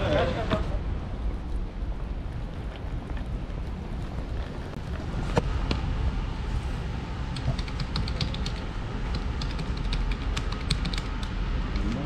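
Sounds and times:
low steady rumble: 0:00.0 - 0:12.0
computer keyboard typing: 0:07.4 - 0:11.3.

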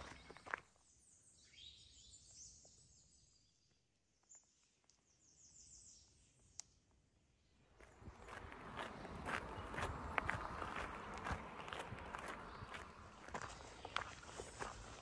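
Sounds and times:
footsteps on dirt trail: 0:00.0 - 0:00.7, 0:07.7 - 0:15.0
songbird chirps: 0:00.0 - 0:15.0.

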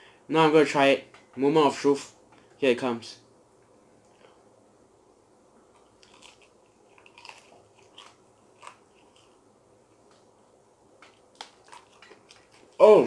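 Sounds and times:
crunching of fried chicken: 0:05.8 - 0:09.4, 0:11.0 - 0:13.0.

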